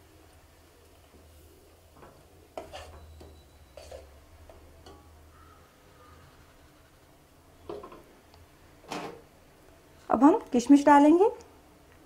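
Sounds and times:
spoon scraping and clinking in pot: 2.6s - 4.2s.

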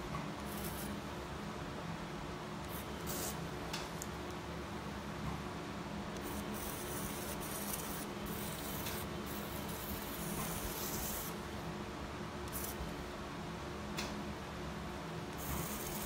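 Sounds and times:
equipment hiss and hum: 0.0s - 16.0s
sharp hissing bursts: 2.7s - 3.4s, 6.2s - 11.4s, 15.4s - 16.0s.

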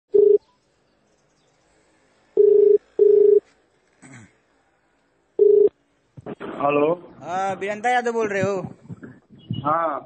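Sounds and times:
telephone ringback tone: 0.2s - 0.4s, 2.4s - 3.4s, 5.4s - 5.7s.

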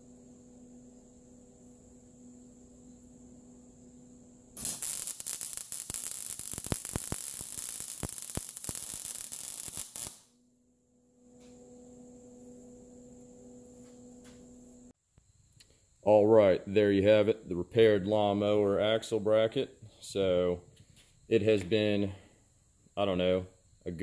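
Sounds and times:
electrical hum: 0.0s - 24.0s
welding arc crackling and popping: 4.6s - 10.3s.

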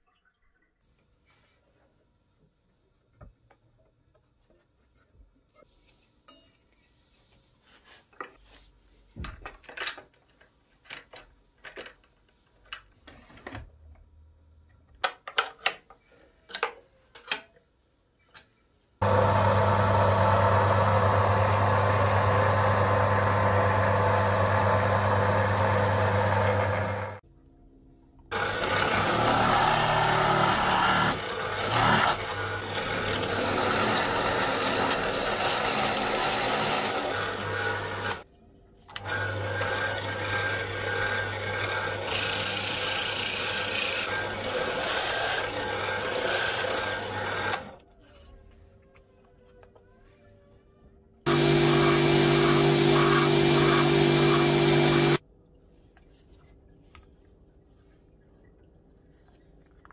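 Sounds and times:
drill press boring wood: 19.0s - 27.2s, 28.3s - 38.2s, 39.0s - 47.7s, 51.3s - 55.2s
electric machine humming: 19.0s - 27.2s, 51.3s - 55.2s.

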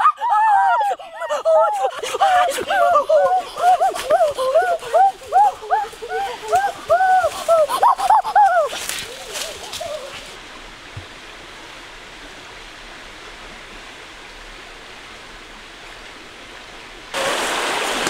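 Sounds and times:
flowing river water: 0.0s - 18.0s
person wading and splashing: 1.3s - 10.4s.

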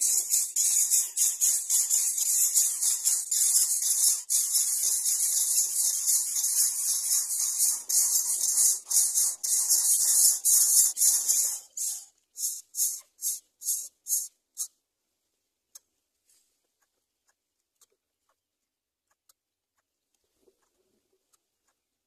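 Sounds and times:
nestlings begging hiss: 0.0s - 14.7s.

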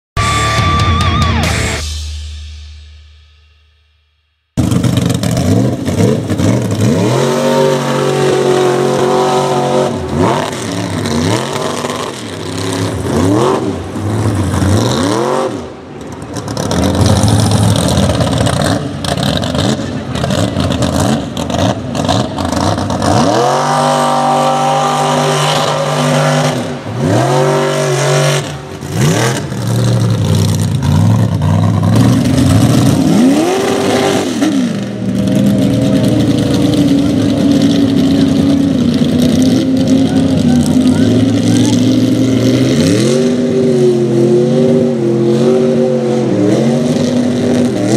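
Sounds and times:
truck engine revving: 4.6s - 47.9s.

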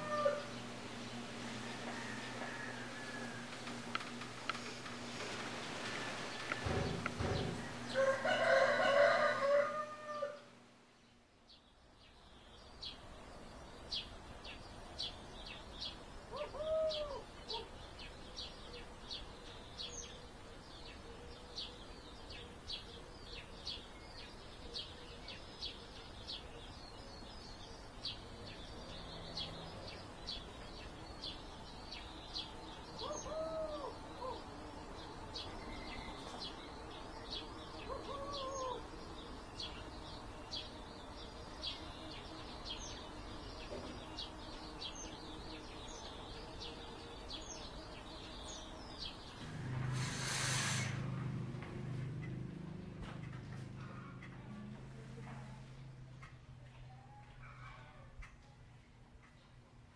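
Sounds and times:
rooster crowing: 0.0s - 10.6s
small birds chirping: 0.0s - 59.9s.

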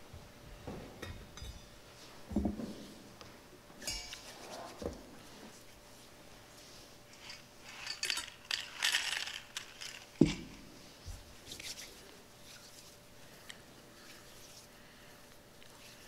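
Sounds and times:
light metallic clinks: 3.8s - 4.2s.

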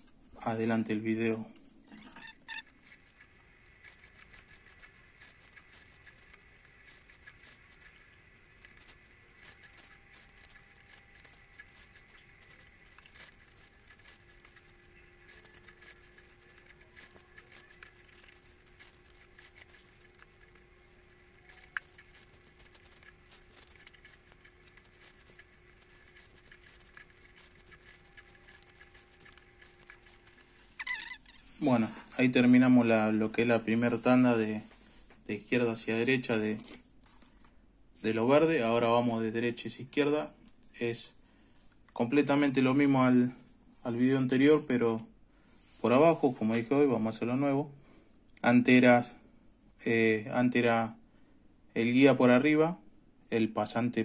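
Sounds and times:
faint steady hum: 0.0s - 54.0s
thread rustling and knotting: 1.8s - 32.3s.

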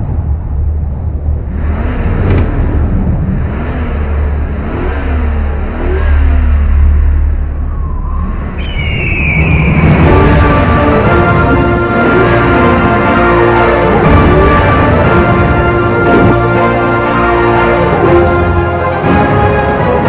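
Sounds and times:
deep low rumble: 0.0s - 17.0s
suv engines revving: 0.0s - 20.0s
falling whistle-like tone: 7.5s - 11.0s
music: 9.3s - 20.0s.

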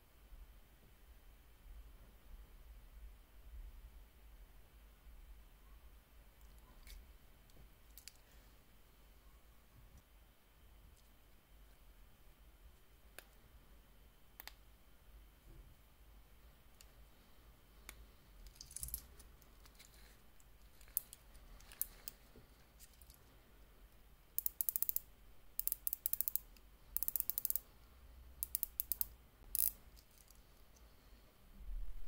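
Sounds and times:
watch bezel ratcheting clicks: 24.4s - 27.6s, 28.4s - 30.4s.

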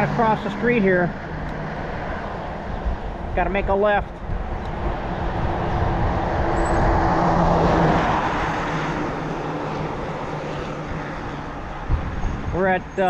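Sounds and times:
car passing: 0.0s - 13.0s.

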